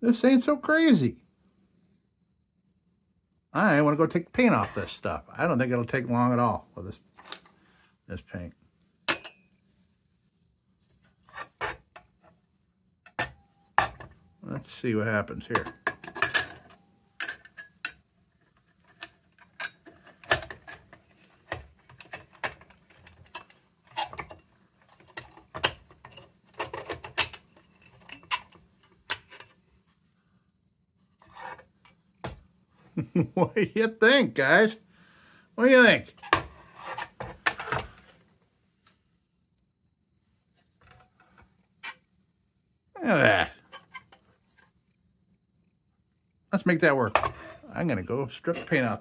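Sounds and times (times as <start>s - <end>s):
metal scraping and rubbing: 11.2s - 11.8s, 31.2s - 31.7s, 36.2s - 38.0s.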